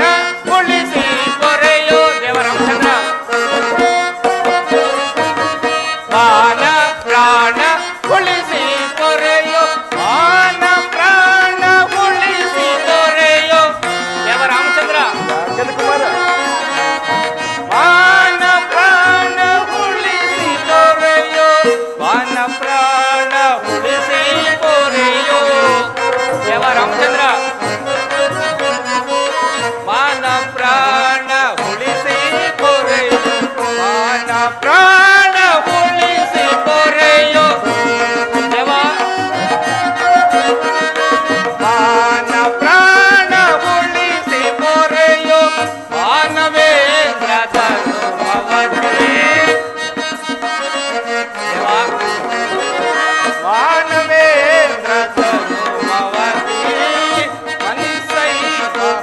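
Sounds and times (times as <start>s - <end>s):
hand drum rhythm: 0.0s - 59.0s
electronic keyboard melody: 9.5s - 21.3s.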